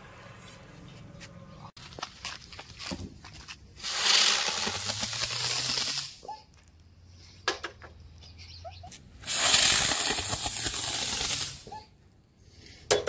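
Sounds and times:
firecracker rushing hiss: 3.8s - 6.3s, 9.2s - 11.8s.

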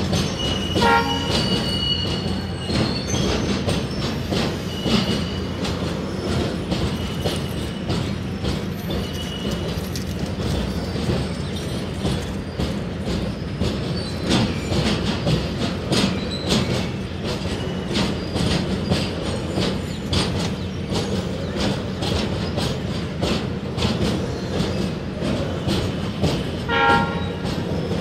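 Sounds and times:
freight train rumble: 0.0s - 28.0s
wheels clacking on rail joints: 0.0s - 28.0s.

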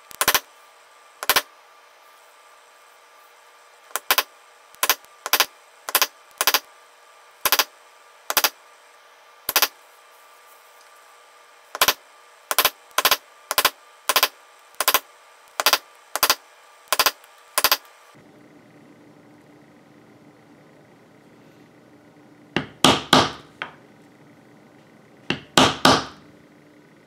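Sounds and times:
mallet tapping leather stamping tool: 22.6s - 23.7s, 25.3s - 26.2s.

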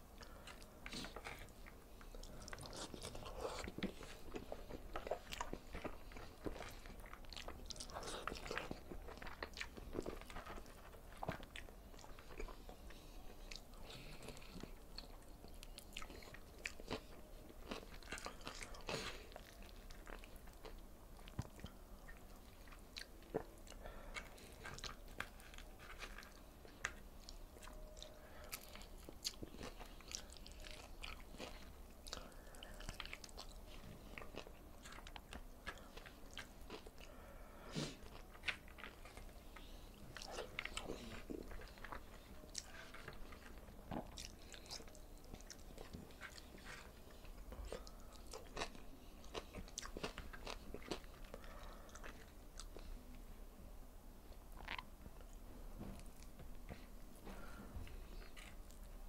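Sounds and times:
close chewing mouth sounds: 0.0s - 53.3s, 54.2s - 59.0s.

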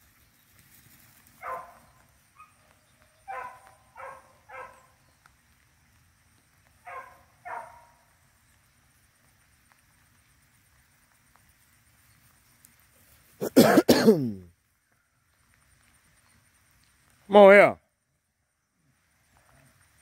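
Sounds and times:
dog barking: 1.4s - 1.8s, 2.4s - 2.6s, 3.3s - 4.9s, 6.8s - 8.0s
dog yelp: 1.4s - 1.8s, 3.3s - 4.8s, 6.9s - 7.9s.

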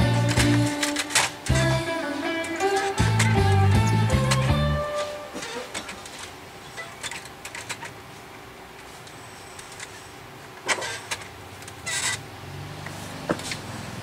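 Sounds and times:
short scraping: 0.1s - 7.0s.

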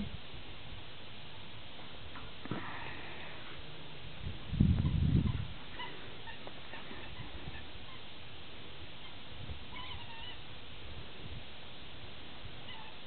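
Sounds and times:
low outdoor rumble: 0.0s - 13.0s
faint warbling animal call: 9.0s - 10.4s.

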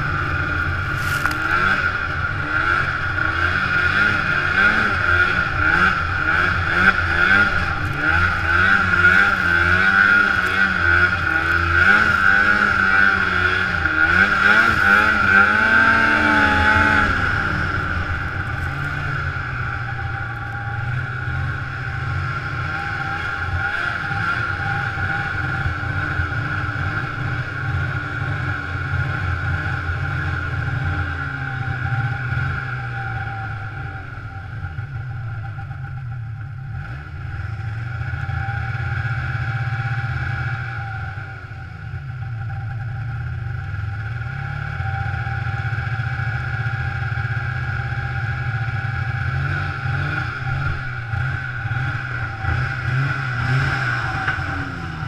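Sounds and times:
snowmobile engine revving: 0.0s - 35.8s, 44.0s - 55.0s
high whine: 0.0s - 55.0s.

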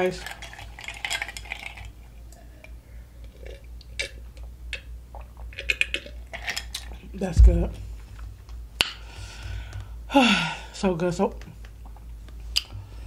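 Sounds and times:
person sipping: 2.6s - 4.5s.

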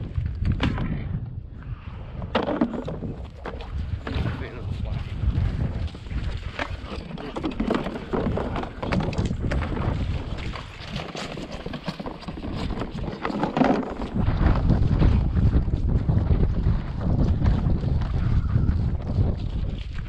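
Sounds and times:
wind rumble on microphone: 0.0s - 20.0s
plastic decoys being handled: 6.4s - 9.7s, 10.4s - 14.2s.

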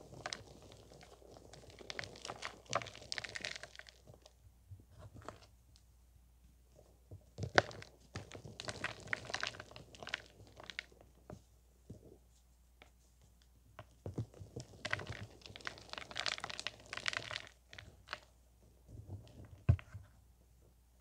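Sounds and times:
hands crushing powder blocks: 0.0s - 4.3s, 7.3s - 11.0s, 14.0s - 18.3s.

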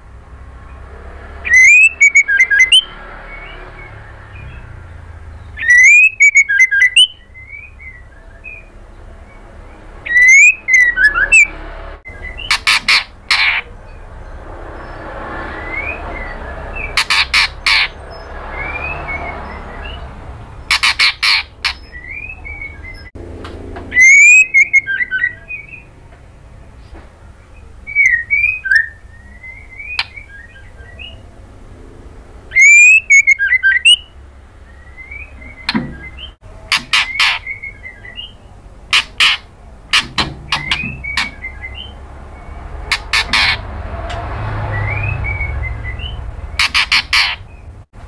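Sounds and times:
bird chattering: 1.4s - 3.6s, 4.3s - 8.9s, 10.0s - 11.5s, 12.2s - 14.2s, 16.8s - 23.1s, 23.9s - 25.9s, 32.5s - 34.2s, 34.8s - 43.7s, 45.3s - 47.8s
bird whistling: 1.4s - 9.4s, 10.0s - 11.5s, 12.1s - 13.7s, 15.6s - 23.1s, 23.9s - 25.9s, 27.6s - 31.2s, 32.5s - 43.6s, 44.6s - 47.7s.

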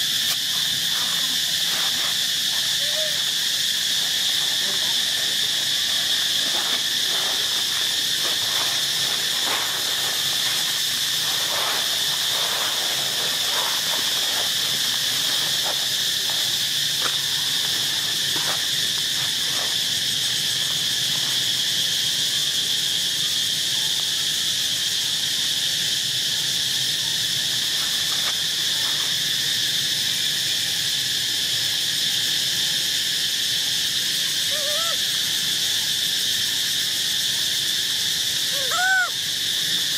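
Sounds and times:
insect chorus: 0.0s - 39.9s.

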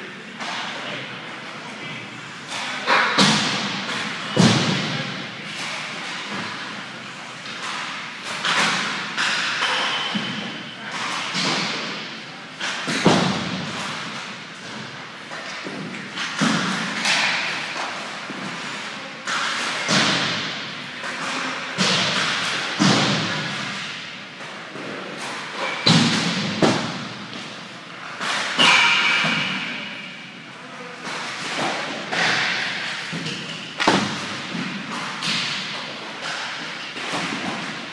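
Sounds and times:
stick hitting puck: 2.5s - 6.8s, 7.4s - 30.2s, 31.0s - 37.9s
pucks thudding on goalie gear: 2.5s - 10.4s, 11.0s - 18.7s, 31.0s - 37.9s.

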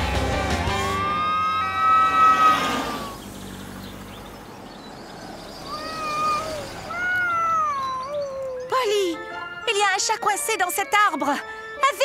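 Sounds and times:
cat meowing: 5.7s - 8.6s.

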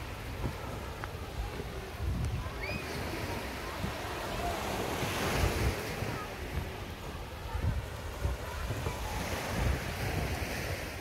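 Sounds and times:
waves washing onto pebbles: 0.0s - 11.0s
wind buffeting microphone: 0.0s - 11.0s.

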